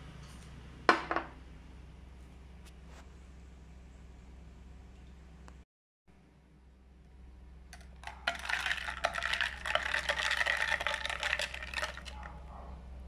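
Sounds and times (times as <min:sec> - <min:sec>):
spoon stirring ice in glass: 0:07.8 - 0:12.3.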